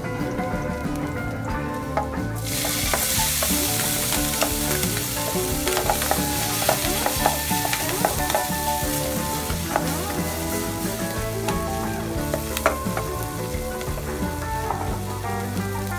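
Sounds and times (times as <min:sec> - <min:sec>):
utensil clicking and scraping pan: 0:02.4 - 0:15.1
food sizzling in oil: 0:02.4 - 0:15.2.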